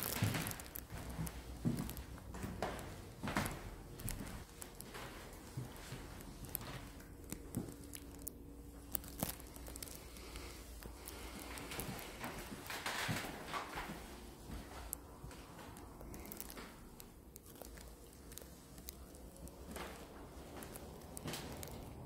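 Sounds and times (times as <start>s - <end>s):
footsteps on hardwood floor: 0.0s - 6.9s.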